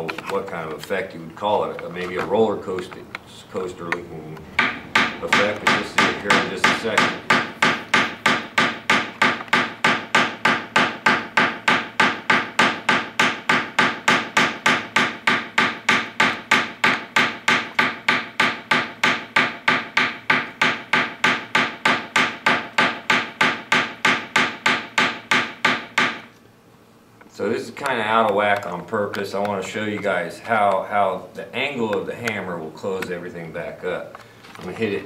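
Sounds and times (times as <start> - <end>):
hammer striking wire on metal: 4.6 - 26.3.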